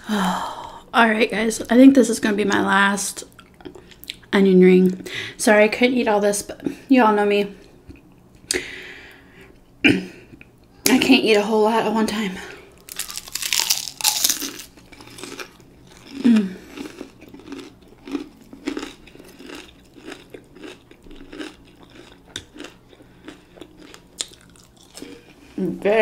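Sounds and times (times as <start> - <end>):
crunchy bite: 12.8 - 25.0
chewing with mouth clicks: 12.8 - 25.4.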